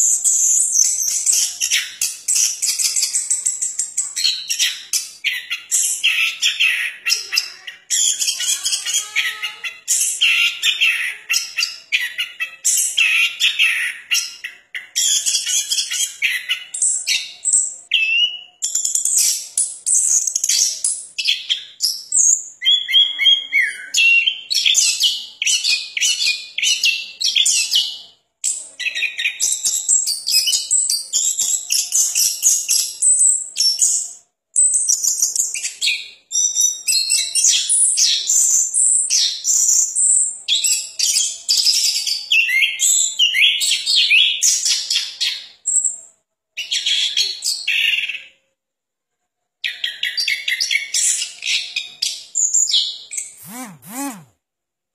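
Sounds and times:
thrush singing: 53.4s - 54.3s.

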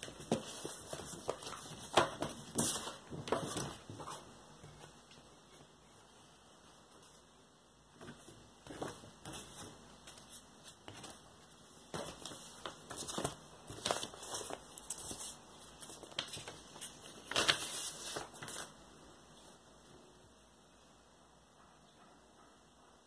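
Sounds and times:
paper and card rustling: 0.0s - 5.7s, 8.0s - 18.8s.

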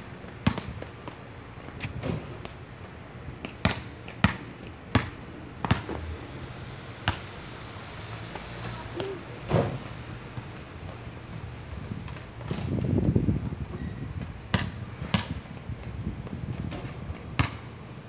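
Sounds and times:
basketball bouncing on asphalt: 0.4s - 1.2s, 3.4s - 6.0s, 14.5s - 15.4s.

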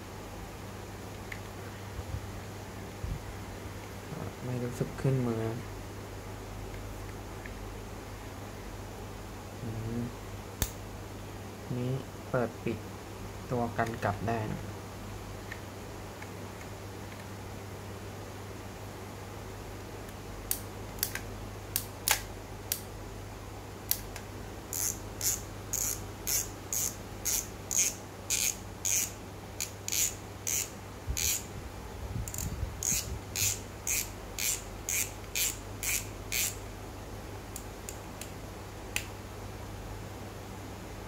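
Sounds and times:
fishing reel clicking: 24.7s - 31.4s, 32.3s - 36.6s.

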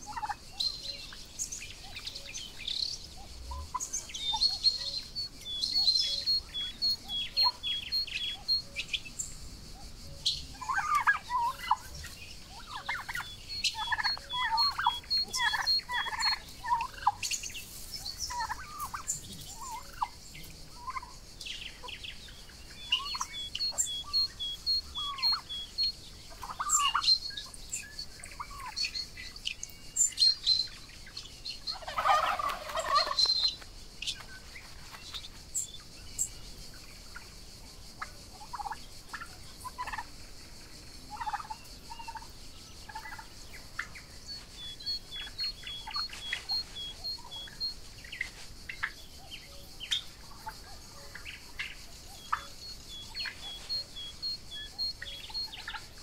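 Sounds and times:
turkeys calling: 0.0s - 1.1s, 3.6s - 9.1s, 10.5s - 20.2s, 20.8s - 21.1s, 22.8s - 29.0s, 31.6s - 33.6s, 38.3s - 40.1s, 41.1s - 42.3s, 42.9s - 49.3s, 49.9s - 56.0s.

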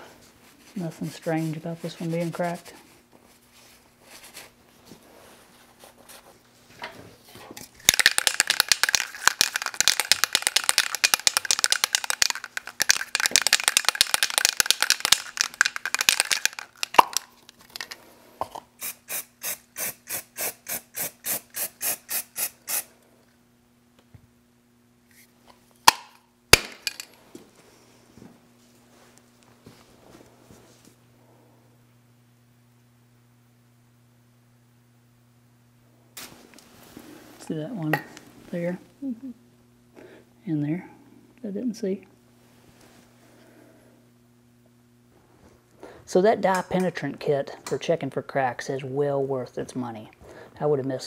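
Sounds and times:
spray can mixing ball rattling: 7.6s - 17.9s
aerosol spray hiss: 18.8s - 22.9s.

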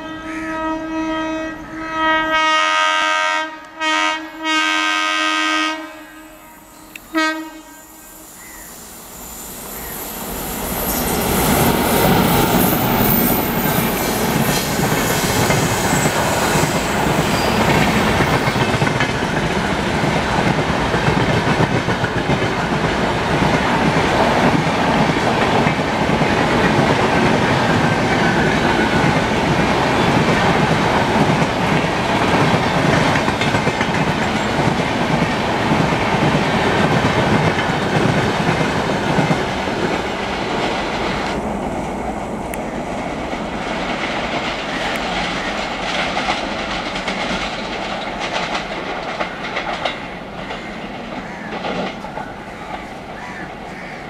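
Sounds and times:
train wheels rushing on rails: 4.4s - 54.0s
clickety-clack over rail joints: 13.5s - 41.4s, 42.5s - 53.6s.

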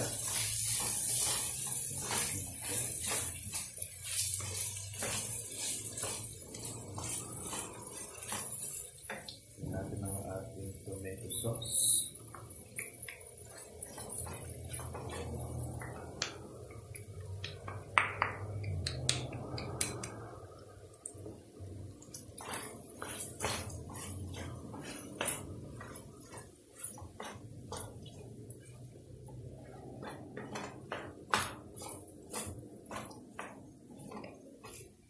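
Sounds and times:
spatula scraping frying pan: 0.0s - 10.8s, 12.0s - 16.9s, 22.0s - 35.0s
spatula knocking against pan: 22.4s - 34.9s.

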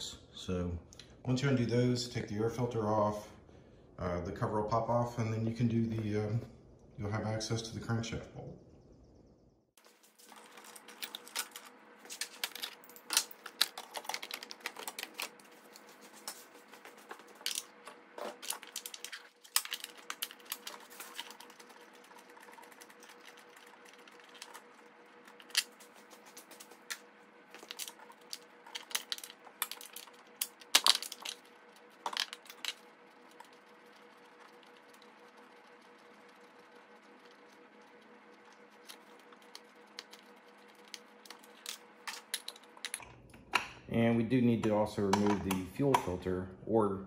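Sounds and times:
plastic cover clicking and clattering: 10.6s - 15.3s, 28.7s - 31.4s, 32.0s - 32.8s
hand tools clicking and rattling: 27.6s - 31.4s, 32.0s - 32.8s.

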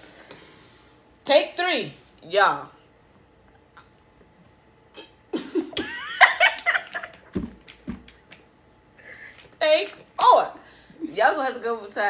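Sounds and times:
woman laughing: 5.3s - 7.3s
man laughing: 5.4s - 7.2s.

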